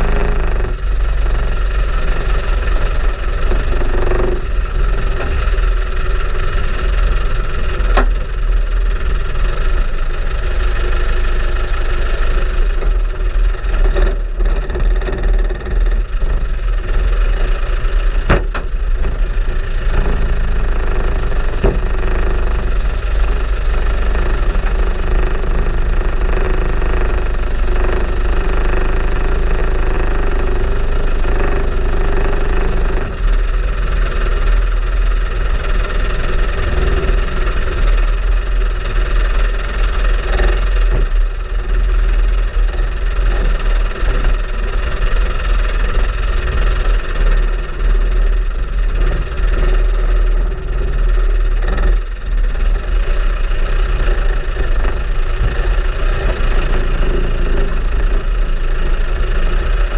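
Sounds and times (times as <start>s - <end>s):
off-road vehicle engine rumbling: 0.0s - 59.9s
sharp knocks: 18.2s - 19.2s.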